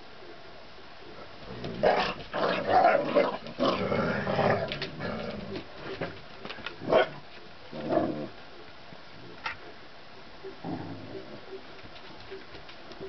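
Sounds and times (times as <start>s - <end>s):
dogs growling: 1.4s - 6.0s, 6.8s - 8.4s, 10.6s - 11.5s.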